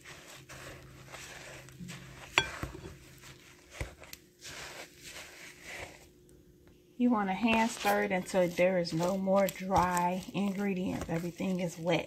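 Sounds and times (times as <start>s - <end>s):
spoon stirring thick dough: 0.0s - 12.0s
spoon clinking against bowl: 2.3s - 2.9s.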